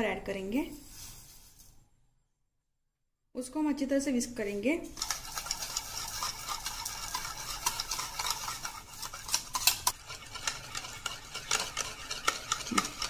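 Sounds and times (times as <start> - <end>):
wire whisk clicking in bowl: 5.0 - 13.0.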